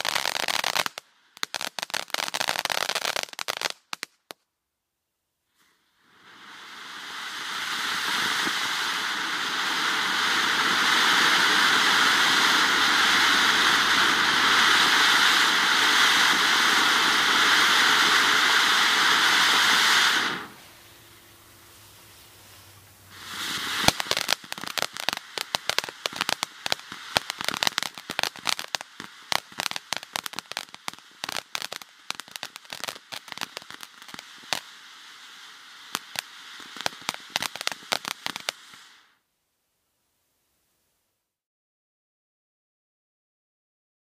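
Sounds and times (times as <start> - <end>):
firework fountain hissing and crackling: 0.0 - 4.4, 5.5 - 39.3.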